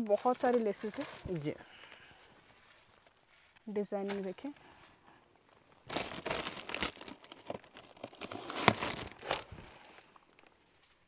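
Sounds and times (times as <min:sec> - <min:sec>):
plastic wrapping crinkling: 0:00.0 - 0:03.3, 0:05.4 - 0:10.6.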